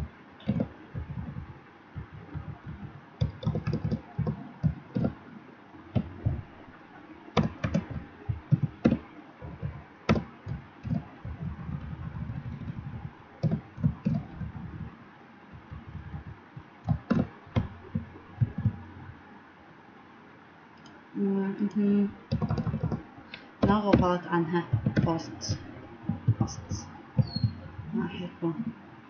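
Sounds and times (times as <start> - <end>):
typing on keyboard: 0.4 - 1.5, 2.1 - 5.2, 7.4 - 14.9, 15.6 - 18.8, 22.3 - 23.0, 24.7 - 27.6.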